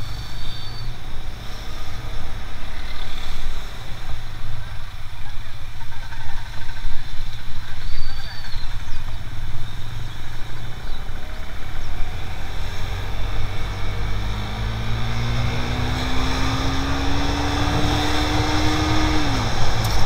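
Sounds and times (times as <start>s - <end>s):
motorcycle engine accelerating: 9.8s - 20.0s.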